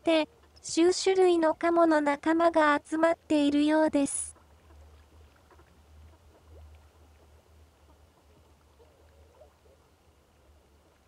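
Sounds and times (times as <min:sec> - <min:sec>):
soft waterbird calls: 0:04.0 - 0:11.0.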